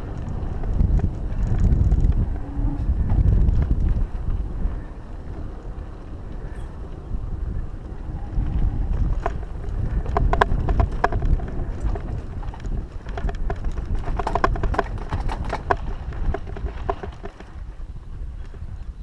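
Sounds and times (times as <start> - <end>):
bike clicks and rattles: 0.0 - 19.0
bike tyres rumbling on dirt: 0.0 - 19.0
wind on microphone: 0.0 - 19.0.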